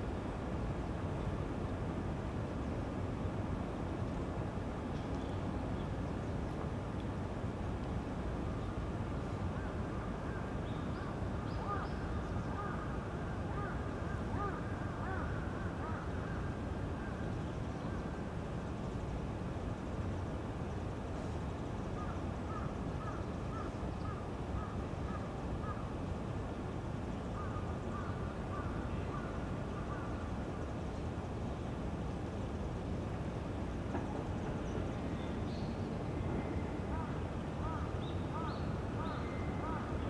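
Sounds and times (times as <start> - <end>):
faint bird calls: 9.6 - 12.9, 13.5 - 17.2, 22.0 - 25.9, 27.3 - 30.2, 36.2 - 40.0.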